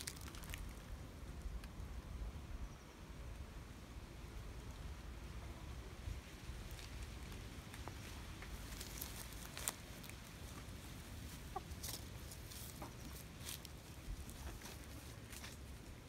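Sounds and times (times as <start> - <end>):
hens clucking: 10.4 - 13.2, 13.8 - 15.2.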